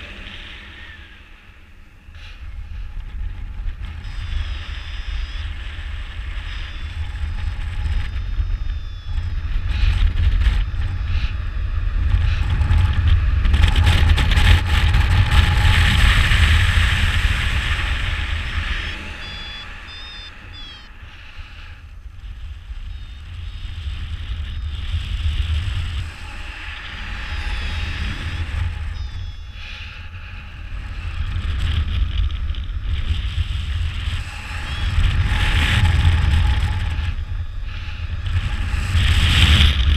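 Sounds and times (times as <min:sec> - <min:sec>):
wind buffeting microphone: 0:00.0 - 0:39.9
short high beeps: 0:18.7 - 0:20.9.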